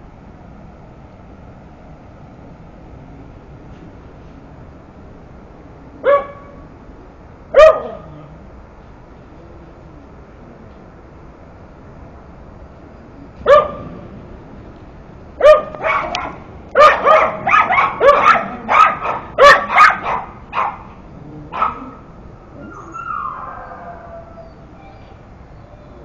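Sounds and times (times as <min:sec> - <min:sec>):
dog barking: 0:06.0 - 0:06.6, 0:07.5 - 0:08.2, 0:13.5 - 0:13.9, 0:15.4 - 0:22.0
dog whining: 0:22.6 - 0:26.0.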